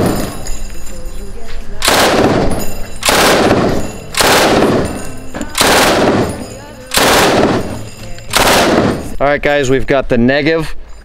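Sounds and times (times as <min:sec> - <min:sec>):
machine gun firing bursts: 0:01.8 - 0:09.2.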